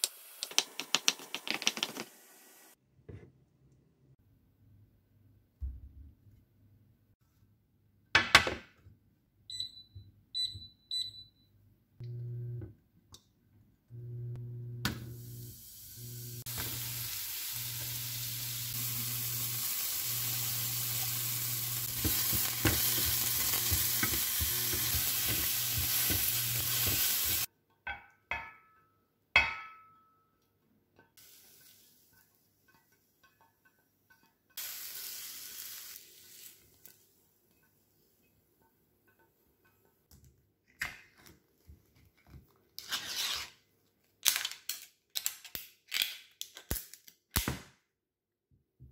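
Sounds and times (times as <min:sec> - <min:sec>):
mushrooms sizzling in pan: 0:00.0 - 0:02.8, 0:15.1 - 0:27.5, 0:31.2 - 0:32.4, 0:34.6 - 0:37.0
cooktop low hum: 0:08.2 - 0:44.0
cooktop beeps: 0:09.5 - 0:12.6
vegetables scraped from pan: 0:42.8 - 0:43.6.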